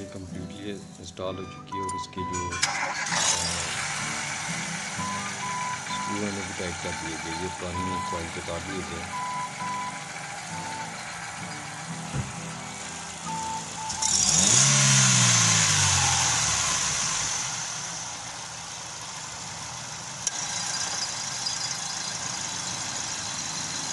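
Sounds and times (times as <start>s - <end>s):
car engine starting and idling: 0.0s - 23.9s
short beeps: 5.0s - 10.0s.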